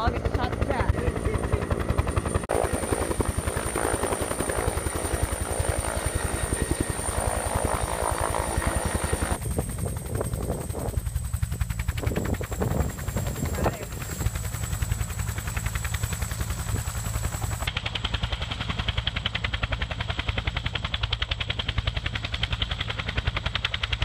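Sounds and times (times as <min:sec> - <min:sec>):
helicopter rotor blades beating: 0:00.0 - 0:24.0
high turbine whine: 0:00.1 - 0:17.7.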